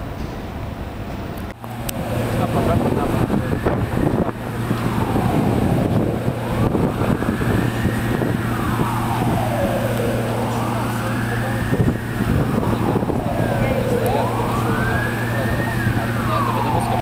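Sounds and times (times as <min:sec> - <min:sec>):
emergency vehicle siren wailing: 0:01.6 - 0:17.0.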